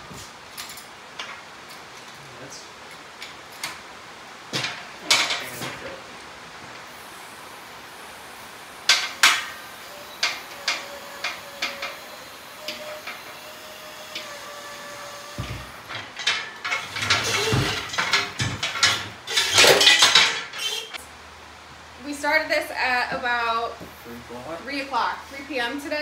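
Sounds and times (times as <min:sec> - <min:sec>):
metal clanks and knocks: 0:04.5 - 0:05.9, 0:08.9 - 0:13.4, 0:14.1 - 0:21.0.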